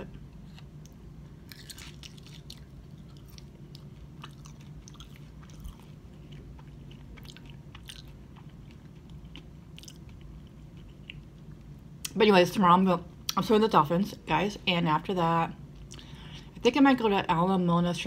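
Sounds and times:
steady low hum: 0.0 - 18.0
person chewing fries: 0.1 - 11.7.

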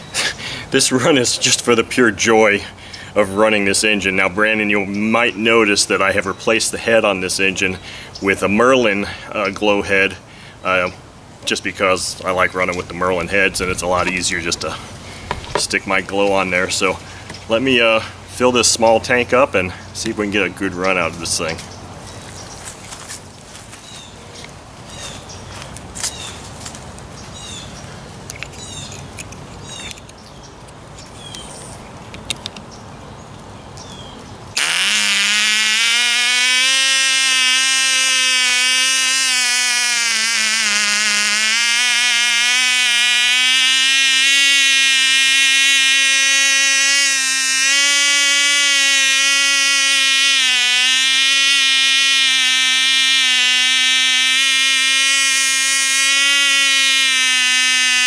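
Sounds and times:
model engine high-pitched buzz: 34.6 - 58.0.

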